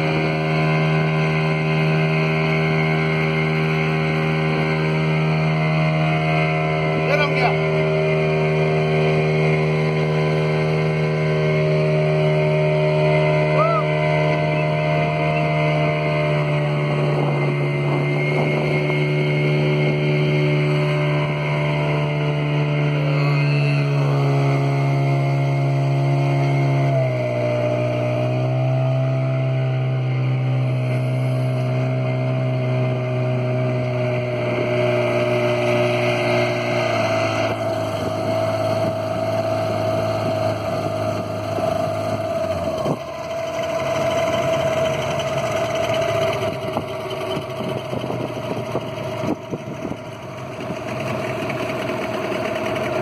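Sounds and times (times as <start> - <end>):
outboard motor drone: 0.0 - 53.0
water rushing: 35.0 - 53.0.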